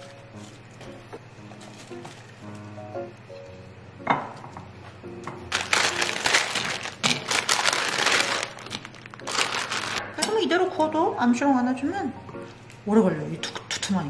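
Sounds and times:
crinkling rustling handling noise: 0:00.0 - 0:02.8, 0:05.5 - 0:10.0
soft background music: 0:00.0 - 0:14.0.

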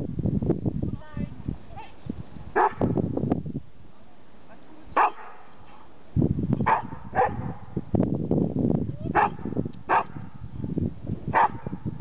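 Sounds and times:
dog barking: 0:02.6 - 0:02.9, 0:05.0 - 0:05.8, 0:06.6 - 0:07.7, 0:09.1 - 0:10.4, 0:11.3 - 0:11.8.

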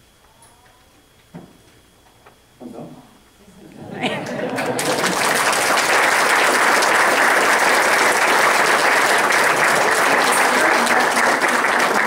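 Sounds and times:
audience applauding: 0:04.0 - 0:12.0.

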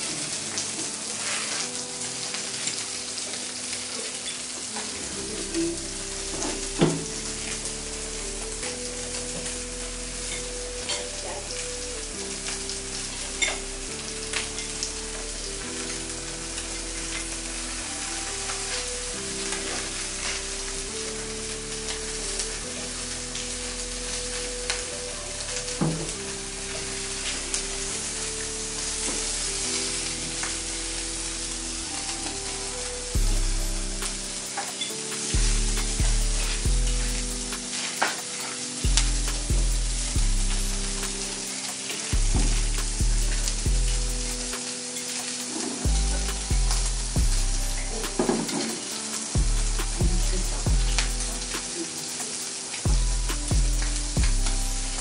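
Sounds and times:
food sizzling in a pan: 0:00.0 - 0:55.0
soft background music: 0:00.0 - 0:55.0.

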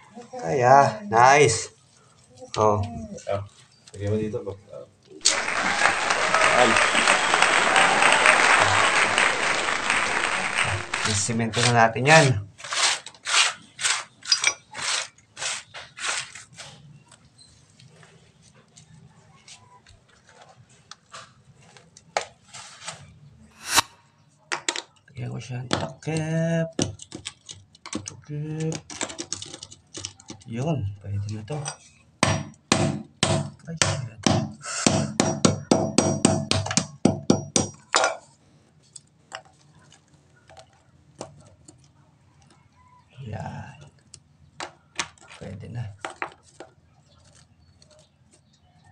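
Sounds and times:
hands tapping and scraping: 0:10.6 - 0:12.3, 0:43.8 - 0:48.6
loud rasping scrape: 0:11.0 - 0:16.5
hammer knocking on tile: 0:32.3 - 0:37.7.

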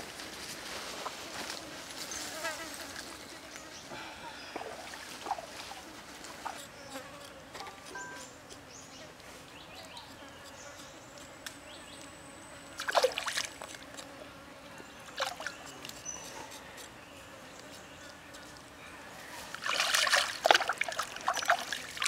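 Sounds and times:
buzzing insects: 0:00.0 - 0:22.0
trickling stream water: 0:04.5 - 0:05.8, 0:12.8 - 0:13.8, 0:15.2 - 0:15.6, 0:19.5 - 0:22.0.

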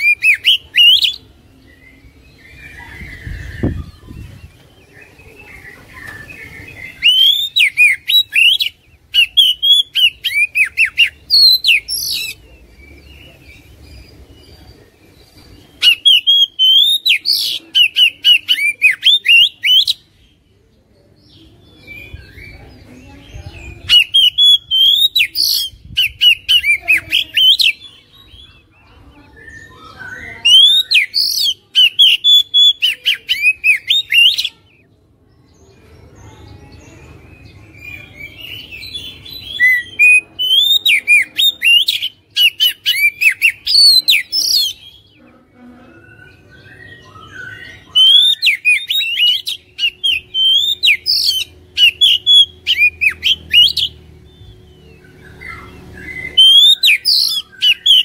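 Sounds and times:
bird singing whistled phrases: 0:00.0 - 0:04.5, 0:05.1 - 0:12.4, 0:15.8 - 0:20.1, 0:23.8 - 0:28.4, 0:29.3 - 0:34.7, 0:37.8 - 0:45.0, 0:46.0 - 0:58.0.

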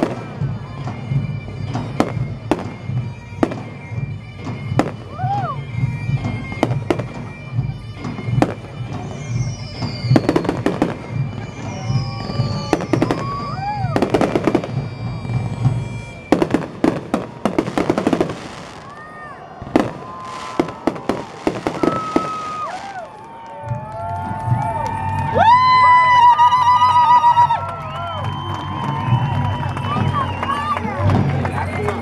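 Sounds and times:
fireworks bangs and crackling: 0:00.0 - 0:28.1
rising and falling whistles: 0:08.3 - 0:23.4, 0:24.8 - 0:30.9
whistling shells falling in pitch: 0:08.9 - 0:19.0, 0:19.8 - 0:23.2.

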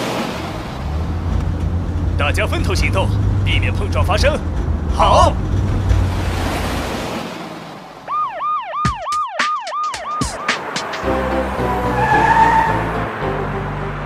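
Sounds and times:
cartoon police siren whoops: 0:08.1 - 0:10.6
song backing music: 0:08.7 - 0:14.0.

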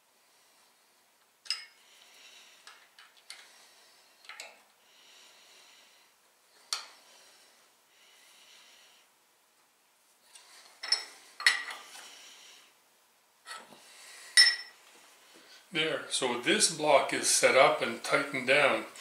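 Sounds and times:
metallic clicks taps and scrapes: 0:01.4 - 0:01.8, 0:04.2 - 0:04.6.

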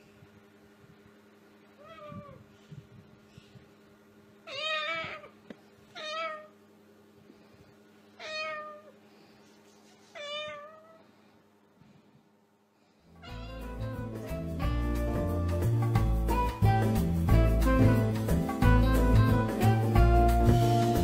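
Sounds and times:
faint steady hum: 0:00.0 - 0:21.0
cat meowing: 0:01.8 - 0:02.5, 0:04.4 - 0:06.6, 0:08.2 - 0:09.0, 0:10.1 - 0:11.1, 0:13.2 - 0:14.0.

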